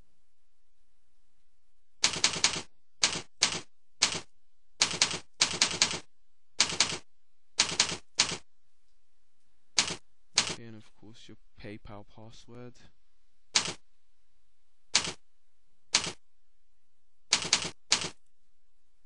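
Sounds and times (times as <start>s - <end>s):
computer keyboard typing: 2.0s - 7.0s, 7.6s - 8.4s, 9.8s - 10.6s, 13.6s - 13.8s, 15.0s - 15.2s, 15.9s - 16.2s, 17.3s - 18.2s.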